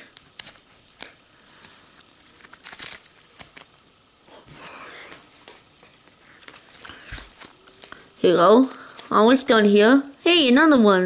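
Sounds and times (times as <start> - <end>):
packaging rustling and crinkling: 6.3 - 9.4.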